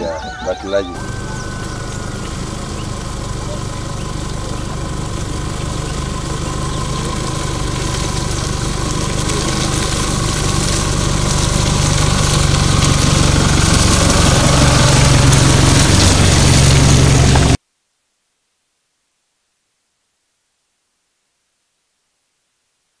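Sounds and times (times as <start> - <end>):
tyres on loose dirt: 0.0 - 17.6
pickup engine driving past: 1.0 - 17.6.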